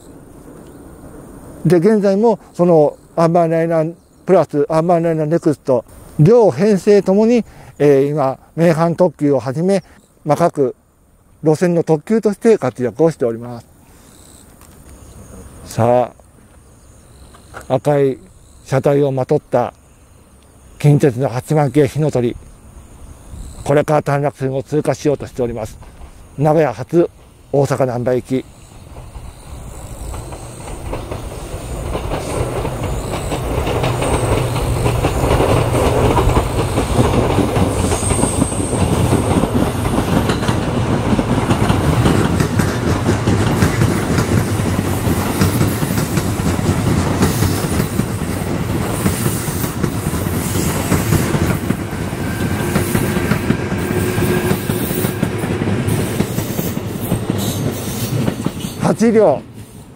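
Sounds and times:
electric train passing: 0:00.0 - 0:59.9
wheels clacking over rail joints: 0:23.6 - 0:59.4.

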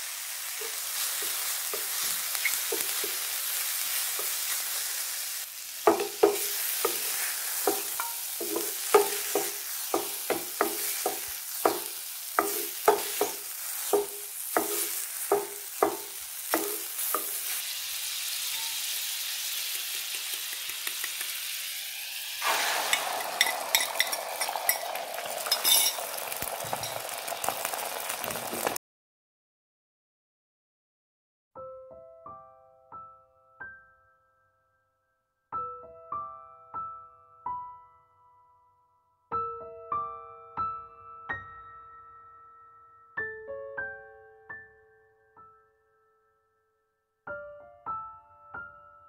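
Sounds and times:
eggs crackling in hot pan: 0:00.0 - 0:28.8
food sizzling in pan: 0:00.0 - 0:28.8
spatula scraping frying pan: 0:00.6 - 0:05.0, 0:05.8 - 0:17.7, 0:22.4 - 0:28.7.

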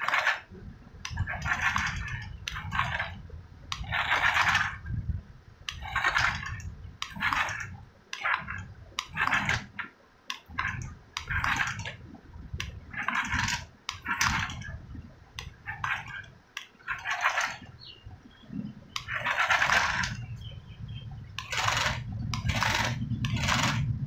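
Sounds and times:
toy car motor whirring: 0:03.7 - 0:04.8, 0:19.0 - 0:20.3, 0:21.4 - 0:23.9.

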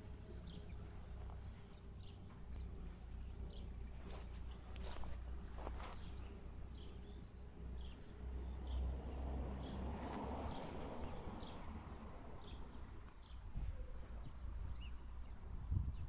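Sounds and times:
bird chirping: 0:00.0 - 0:08.9, 0:09.6 - 0:16.0
handling rustle: 0:03.9 - 0:06.3
wind rumbling on microphone: 0:12.9 - 0:16.0.

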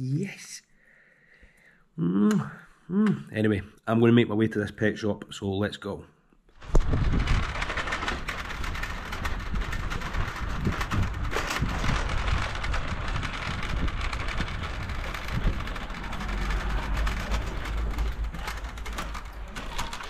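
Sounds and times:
trolley rattling over paving: 0:06.6 - 0:20.0
wind rumbling on microphone: 0:06.6 - 0:20.0.

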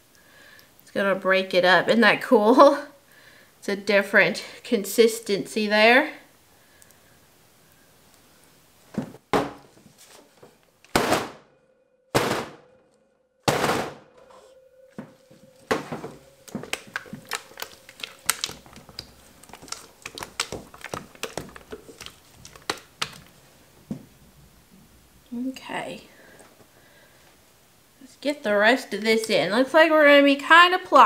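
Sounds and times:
plastic pitchers thunking on steel: 0:09.0 - 0:09.7, 0:15.0 - 0:17.4.

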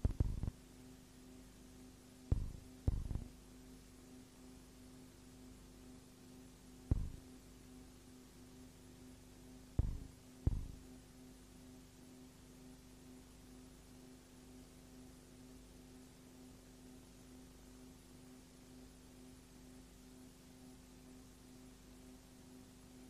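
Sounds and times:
dull thumps: 0:00.0 - 0:00.5, 0:02.3 - 0:03.3, 0:06.9 - 0:07.2, 0:09.8 - 0:10.8
low hum: 0:00.0 - 0:00.6, 0:02.3 - 0:03.4, 0:06.9 - 0:07.4, 0:09.8 - 0:10.9.

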